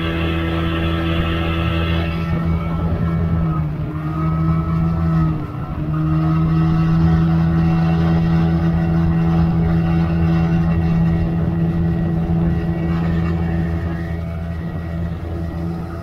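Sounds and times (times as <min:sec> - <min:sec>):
outboard motor running: 0:00.0 - 0:16.0
water rushing past hull: 0:00.0 - 0:16.0.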